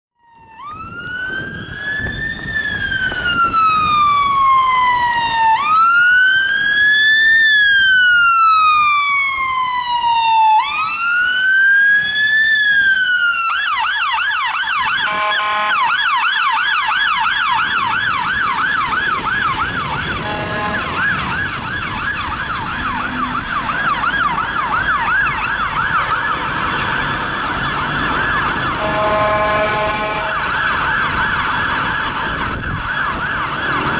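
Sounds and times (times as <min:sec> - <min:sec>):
fire engine siren: 0:00.1 - 0:33.9
bullhorn blasts: 0:15.0 - 0:15.9, 0:20.1 - 0:21.2, 0:28.8 - 0:30.5.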